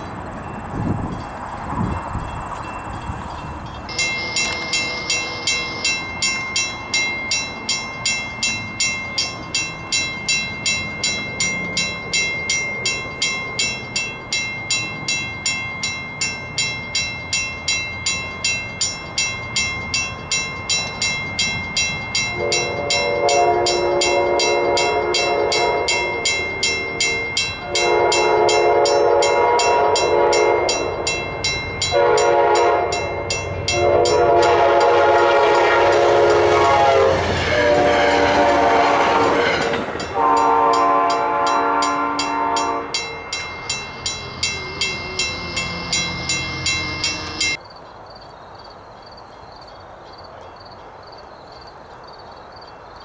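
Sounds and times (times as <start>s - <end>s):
crossing warning bell: 0.0s - 47.6s
train rushing past: 0.0s - 47.6s
train horn blasts: 3.9s - 6.2s, 22.2s - 31.2s, 31.8s - 43.3s.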